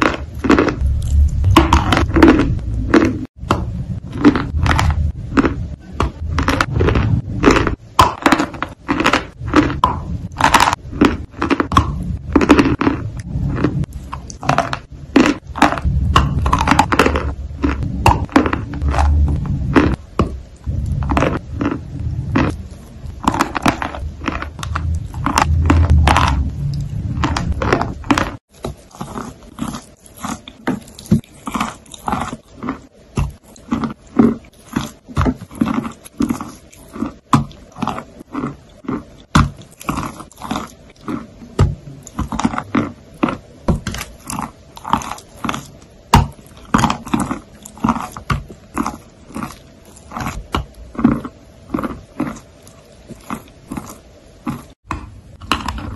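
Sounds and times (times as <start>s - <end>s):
low rumble: 0.0s - 8.0s, 9.3s - 28.5s
person chewing soft food: 0.0s - 55.9s.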